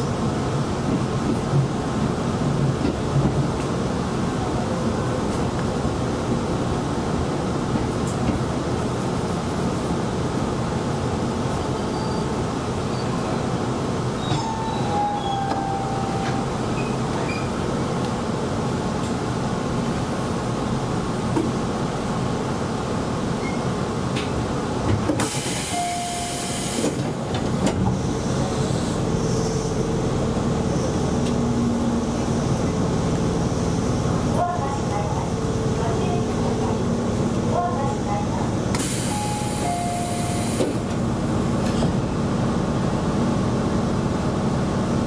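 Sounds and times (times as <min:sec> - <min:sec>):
train wheels rumbling on rails: 0:00.0 - 0:45.0
falling squeals: 0:14.2 - 0:17.6.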